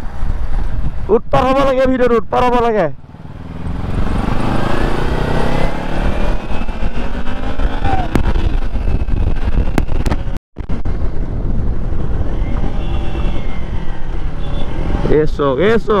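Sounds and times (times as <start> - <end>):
wind rush on microphone: 0.0 - 2.6, 3.3 - 16.0
motorcycle engine revving: 3.0 - 10.4.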